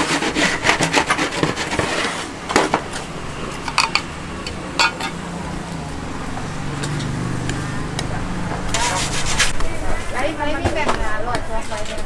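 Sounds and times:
utensils and cookware clattering: 0.0s - 5.8s, 6.4s - 10.0s.

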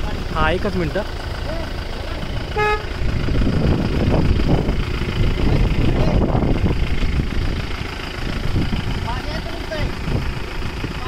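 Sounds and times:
car engine rumbling: 0.0s - 11.0s
car horn toot: 2.4s - 3.0s.

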